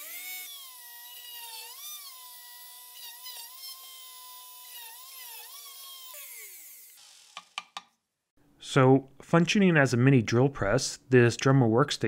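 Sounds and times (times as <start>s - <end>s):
rotary tool drill whine: 0.0s - 7.4s.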